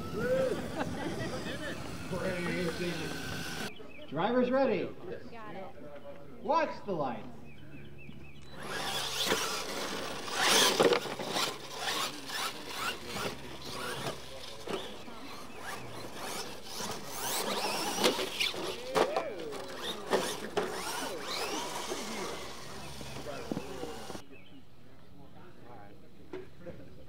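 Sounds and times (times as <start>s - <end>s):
electric motors whining: 0.0s - 3.7s, 8.3s - 24.2s
tyres scrabbling in dirt: 8.4s - 24.2s.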